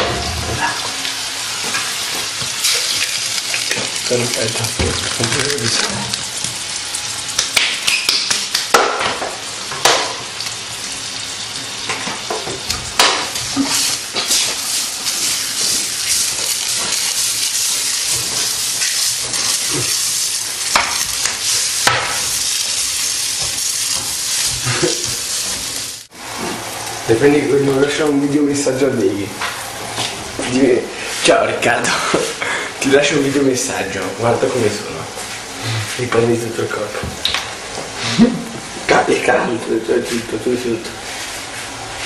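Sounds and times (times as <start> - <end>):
beans sizzling in a pan: 0.6 - 28.1.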